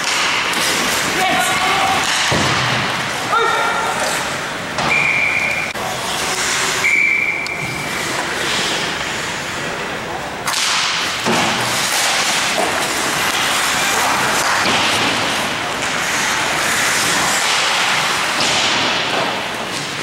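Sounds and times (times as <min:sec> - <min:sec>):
stick hitting puck: 0:00.0 - 0:03.0, 0:10.4 - 0:20.0
arena noise: 0:00.0 - 0:20.0
skates hissing on ice: 0:05.8 - 0:09.7, 0:11.6 - 0:20.0.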